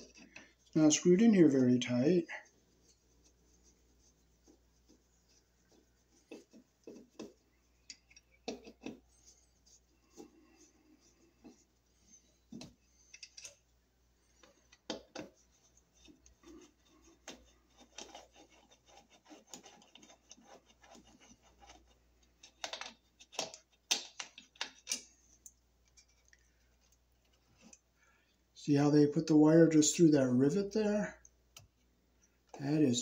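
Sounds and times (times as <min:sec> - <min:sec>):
screwdriver clicking and scraping: 0:12.6 - 0:13.6.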